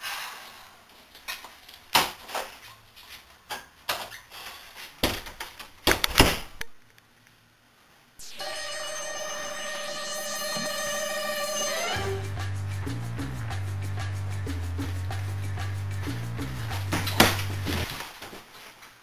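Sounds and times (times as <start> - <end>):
music with held tones: 8.2 - 18.0.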